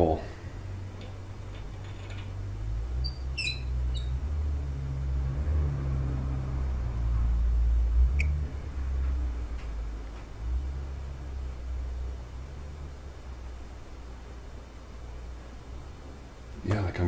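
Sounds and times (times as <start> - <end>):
high metallic squeaks: 3.0 - 4.2, 8.2 - 8.4.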